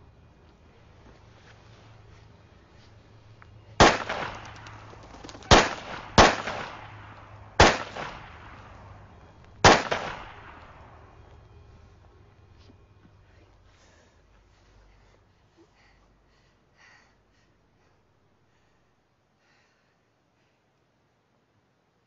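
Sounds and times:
echoing gunshots: 3.8s - 11.1s.

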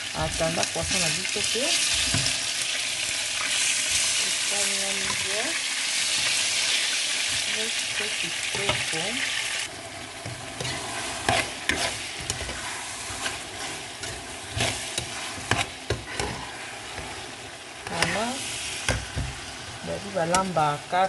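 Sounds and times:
vegetables sizzling in oil: 0.0s - 21.0s
spoon scraping and knocking pan: 10.2s - 18.2s, 18.8s - 19.6s.

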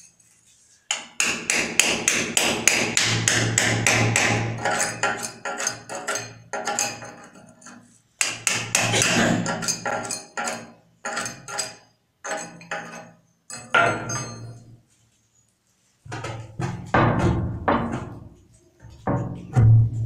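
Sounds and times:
hammer striking steel chisel: 0.9s - 7.3s, 8.2s - 14.6s.

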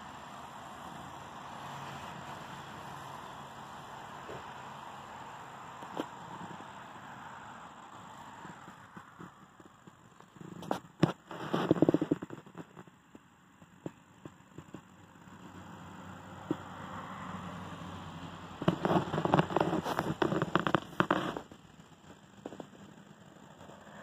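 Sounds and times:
crackling rustles: 0.0s - 17.2s, 17.8s - 24.0s
faint steady hiss: 0.0s - 24.0s.

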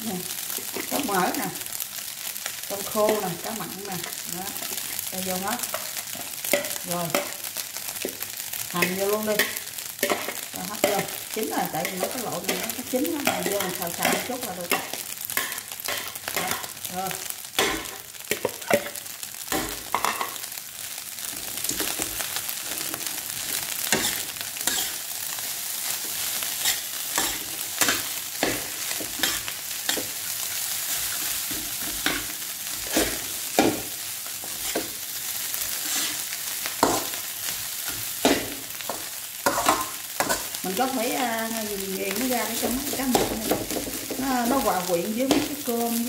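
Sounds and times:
rice sizzling in a wok: 0.0s - 46.0s
metal spatula scraping a wok: 22.6s - 25.1s, 26.0s - 35.0s, 35.6s - 37.2s, 37.8s - 40.6s.

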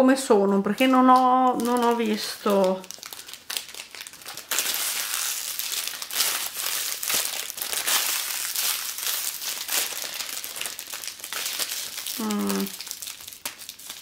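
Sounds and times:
wrapper crackling and rustling: 0.5s - 14.0s.

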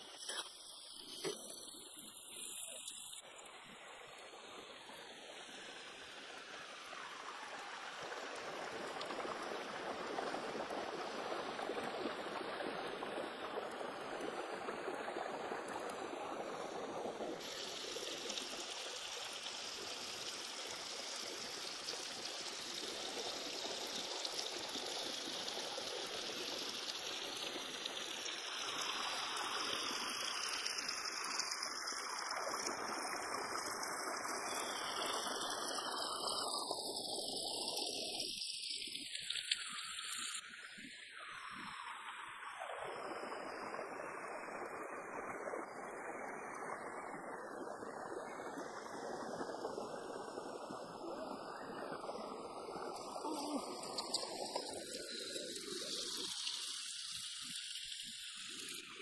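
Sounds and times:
rocky stream running: 0.0s - 59.0s.

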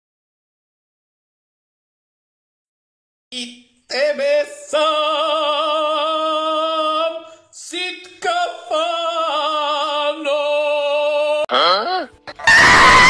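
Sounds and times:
person singing unaccompanied: 3.3s - 12.2s.

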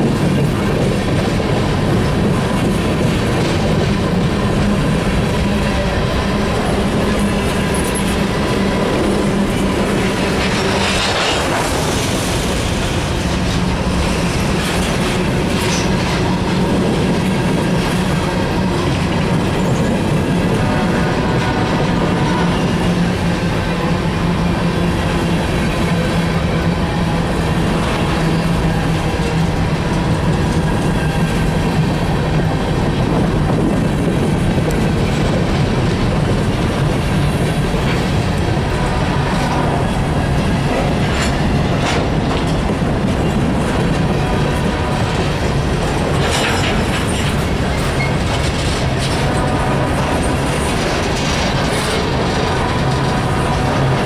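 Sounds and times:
steel wheels on rail: 0.0s - 54.0s.

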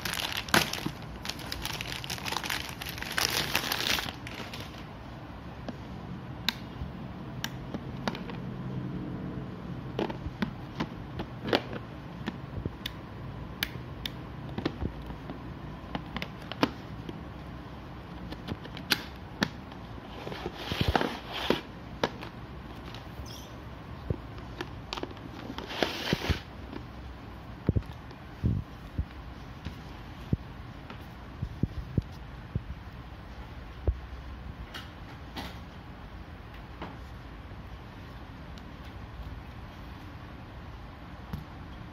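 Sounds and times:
short scraping rustles: 25.6s - 26.5s.

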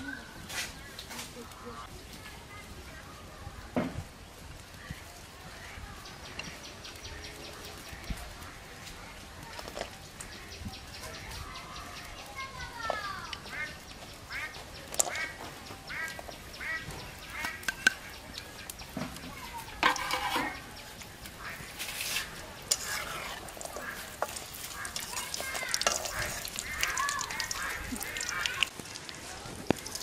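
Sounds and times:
dumplings sizzling in oil: 2.9s - 30.0s
ducks quacking: 13.4s - 18.2s, 21.3s - 28.7s
metal spatula stirring: 19.6s - 28.5s.

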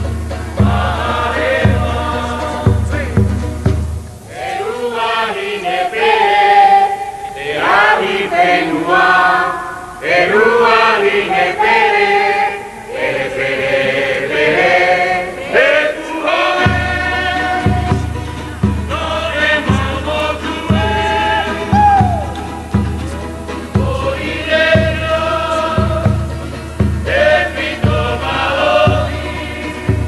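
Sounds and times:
deep drum beats: 0.0s - 4.3s, 16.6s - 30.0s
group of voices chanting: 4.2s - 30.0s.

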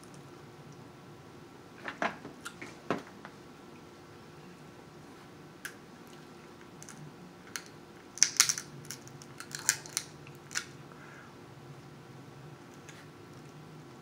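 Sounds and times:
crab shell cracking: 6.8s - 10.7s.

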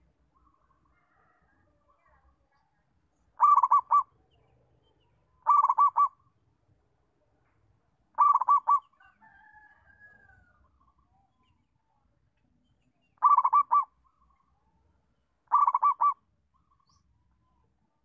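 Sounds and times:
dove cooing: 3.4s - 4.1s, 5.4s - 6.2s, 8.2s - 8.9s, 13.2s - 13.9s, 15.5s - 16.2s.

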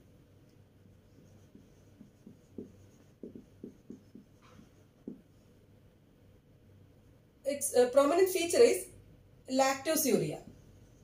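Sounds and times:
marker writing on whiteboard: 0.0s - 5.6s, 10.4s - 11.0s.

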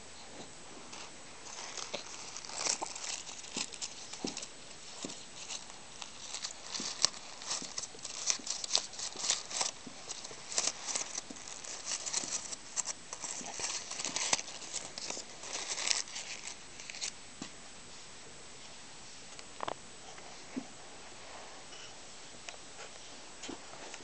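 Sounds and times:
shiny wrapper crinkling: 1.4s - 17.2s.

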